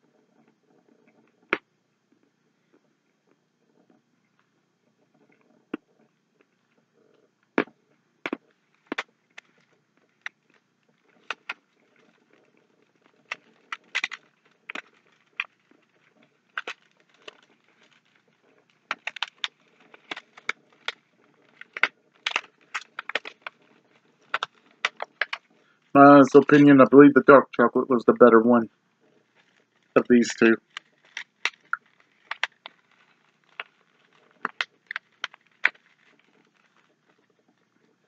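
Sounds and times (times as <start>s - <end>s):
person chewing candy bar: 8.3s - 25.8s, 29.2s - 37.2s.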